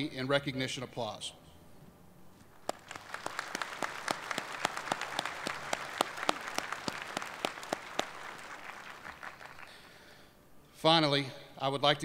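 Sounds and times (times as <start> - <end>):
audience applauding: 2.6 - 10.1.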